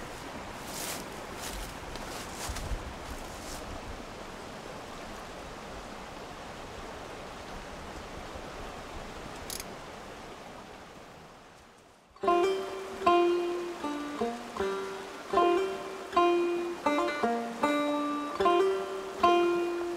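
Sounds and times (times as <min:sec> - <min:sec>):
woodland stream running: 0:00.0 - 0:19.9
plucked-string music: 0:12.2 - 0:19.9.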